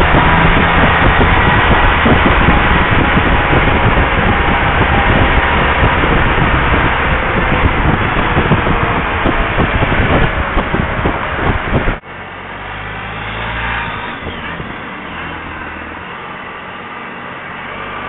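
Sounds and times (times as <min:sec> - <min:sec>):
wind on microphone: 0:00.0 - 0:12.0, 0:13.0 - 0:16.2
vehicle engine running: 0:00.0 - 0:18.0.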